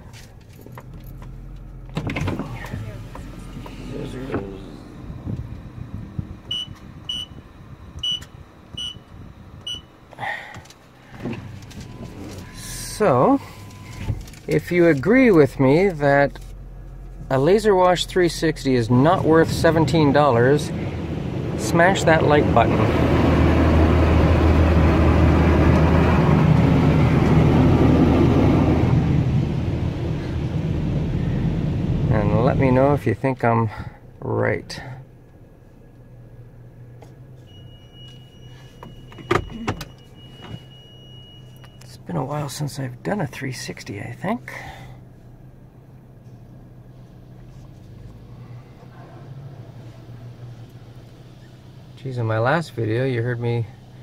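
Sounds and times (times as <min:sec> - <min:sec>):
keypad beeps: 0:08.0 - 0:09.0
low hum of wash machinery: 0:11.1 - 0:34.1.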